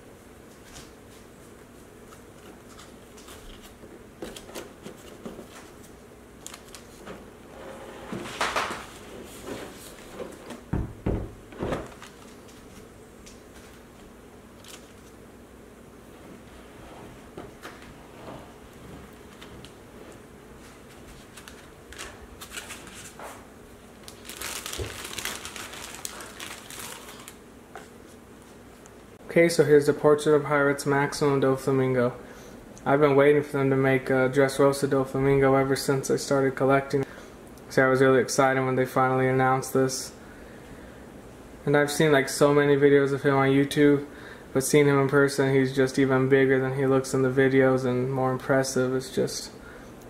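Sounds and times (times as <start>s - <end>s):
plastic packaging crinkling: 6.4s - 7.1s, 11.8s - 12.9s, 14.6s - 15.2s, 20.9s - 23.2s, 24.0s - 27.4s.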